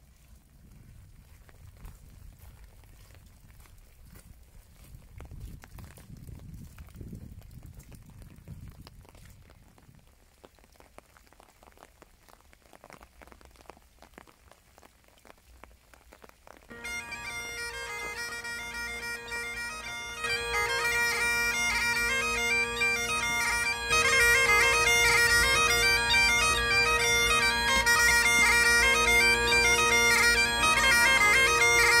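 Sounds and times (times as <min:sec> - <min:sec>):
bagpipe melody with drone: 0:16.7 - 0:32.0.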